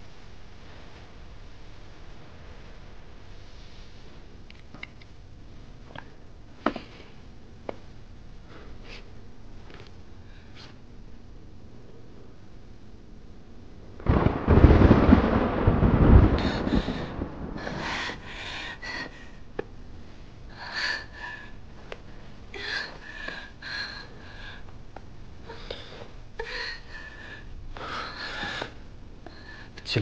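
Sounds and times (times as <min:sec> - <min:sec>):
loud rumbling crash: 0:14.0 - 0:18.4
woman breathing heavily: 0:16.2 - 0:24.8, 0:25.4 - 0:29.8.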